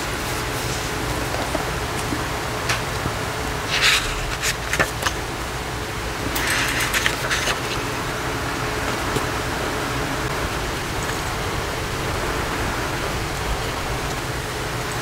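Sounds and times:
steady hissing noise: 0.0s - 15.0s
paper rustling: 3.6s - 5.3s, 6.3s - 8.1s.

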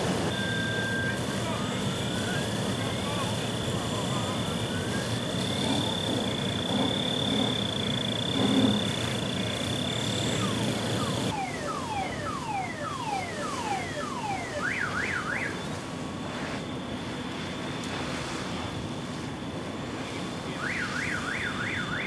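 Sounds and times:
hose spray hiss: 0.0s - 11.3s
car alarm: 0.1s - 15.8s, 20.5s - 22.0s.

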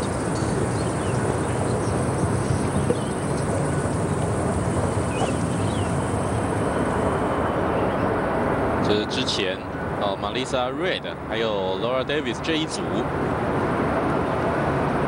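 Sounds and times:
faint chirps: 0.0s - 6.4s
outdoor rushing noise: 0.0s - 15.0s.

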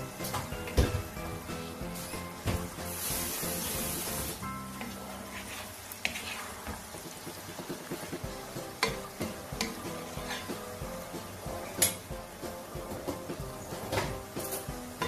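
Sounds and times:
background music: 0.0s - 5.0s, 7.9s - 15.0s
noodles sizzling in a wok: 0.0s - 15.0s
wooden spatula knocking pan: 6.0s - 15.0s.

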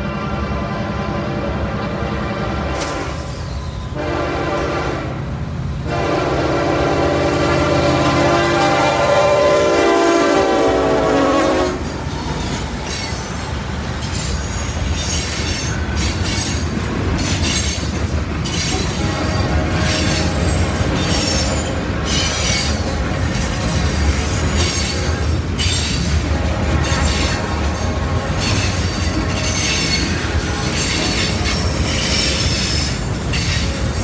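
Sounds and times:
locomotive air horn: 0.0s - 11.9s, 18.9s - 22.2s, 24.6s - 25.4s, 26.2s - 32.8s
freight cars rumbling: 0.0s - 34.0s
train wheel squeal: 2.8s - 4.2s, 10.9s - 34.0s.

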